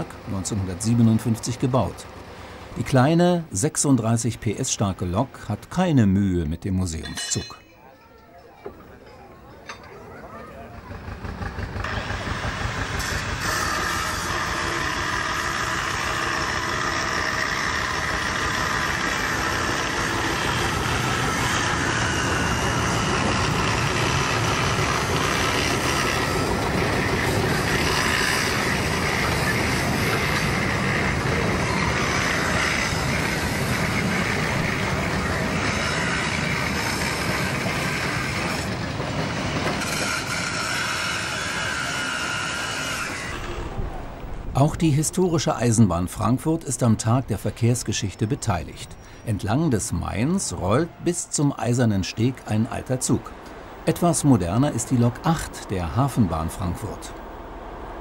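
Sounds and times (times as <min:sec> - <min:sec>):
diesel locomotive running: 0:00.0 - 0:07.6, 0:08.8 - 0:58.0
wagon wheels on track: 0:07.1 - 0:44.5.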